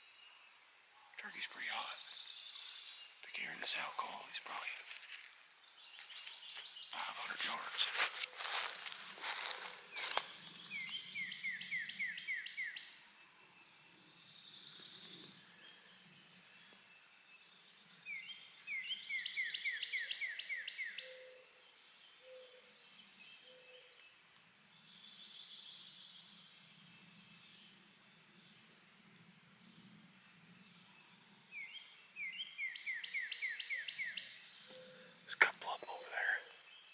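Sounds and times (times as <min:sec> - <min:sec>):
faint distant low bird calls: 0:00.0 - 0:36.9
other birds chirping: 0:01.0 - 0:13.0, 0:31.6 - 0:36.9
songbird whistled song: 0:09.3 - 0:13.0, 0:18.0 - 0:24.2, 0:31.6 - 0:36.9.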